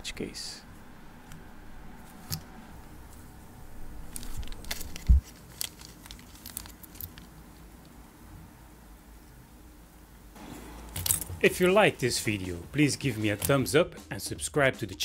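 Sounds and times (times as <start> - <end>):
plastic film crinkling: 2.2 - 8.0.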